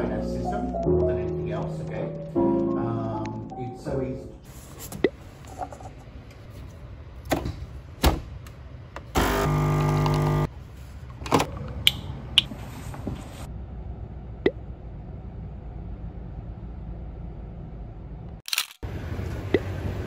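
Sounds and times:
coffee machine pump buzzing: 9.1 - 10.5.

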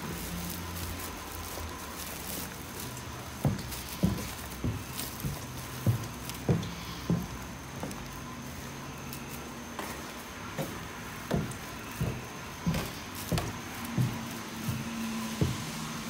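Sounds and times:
footsteps on stairs: 0.0 - 16.0.

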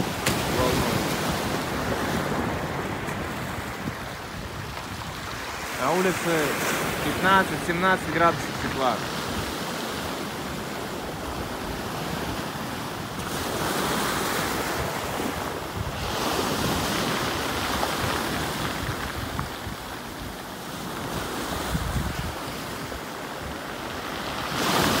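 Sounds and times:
wind buffeting microphone: 0.0 - 5.8, 13.1 - 23.7
waves washing on pebble beach: 0.0 - 25.0.

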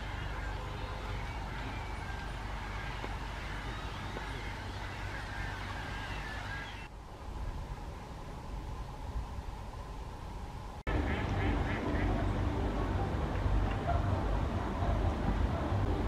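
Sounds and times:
flock of gulls calling: 0.0 - 6.9
low background noise: 0.0 - 16.0.

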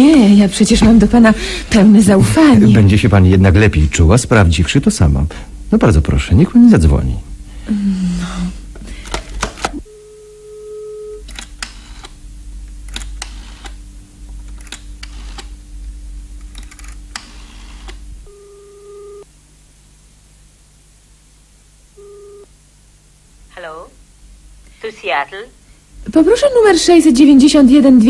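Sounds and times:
telephone dial tone: 18.3 - 19.3.

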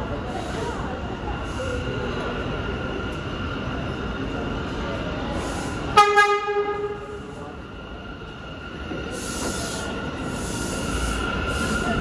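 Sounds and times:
subway train rumbling: 0.0 - 12.0
train horn blast: 5.9 - 7.1.

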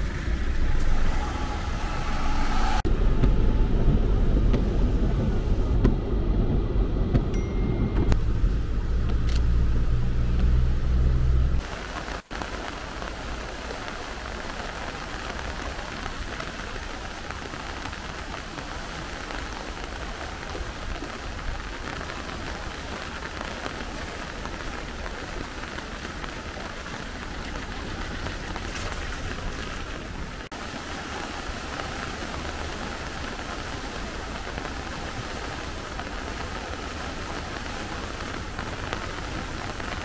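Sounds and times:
car cabin rumble: 0.0 - 11.6
flooded stream rushing: 11.6 - 40.0.

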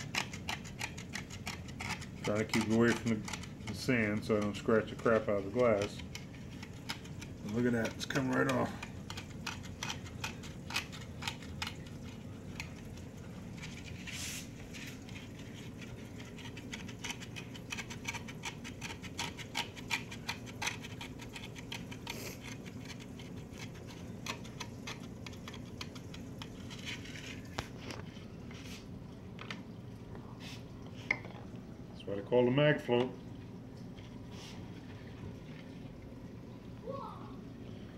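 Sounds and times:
blade scraping algae off glass: 0.0 - 12.8.

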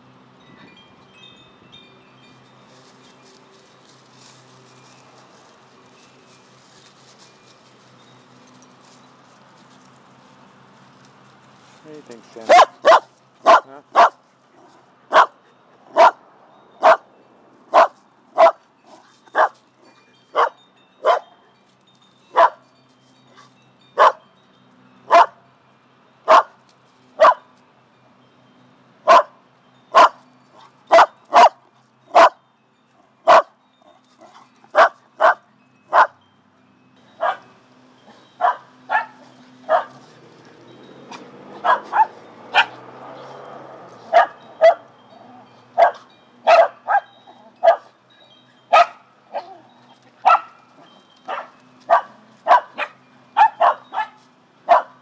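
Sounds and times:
dog barking: 12.5 - 14.2, 15.1 - 15.4, 16.0 - 16.2, 16.8 - 17.0, 17.8 - 18.6, 19.4 - 19.6, 20.4 - 21.2, 22.4 - 22.6, 24.0 - 24.2, 25.1 - 25.4, 26.3 - 26.6, 27.2 - 27.4, 29.1 - 29.4, 30.0 - 30.2, 30.9 - 31.6, 32.2 - 32.4, 33.3 - 33.5, 34.8 - 36.2, 37.2 - 37.4, 38.4 - 39.9, 41.6 - 42.8, 44.1 - 44.8, 45.8 - 47.9, 48.7 - 49.6, 50.2 - 50.6, 51.3 - 55.0.

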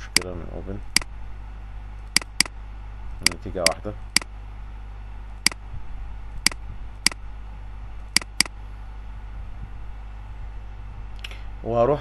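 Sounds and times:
computer mouse clicking: 0.0 - 0.3, 2.2 - 2.5, 8.2 - 8.5
low hum: 0.0 - 12.0.

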